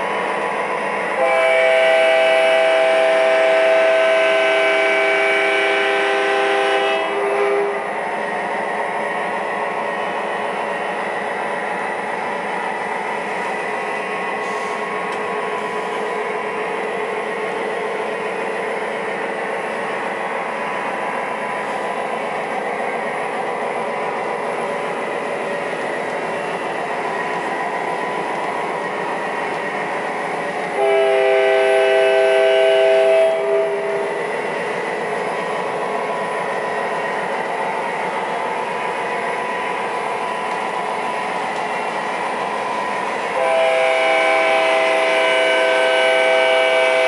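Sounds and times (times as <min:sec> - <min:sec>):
model train rumbling: 0:00.0 - 0:47.0
model train horn blast: 0:01.2 - 0:07.9, 0:30.7 - 0:34.1, 0:43.3 - 0:47.0.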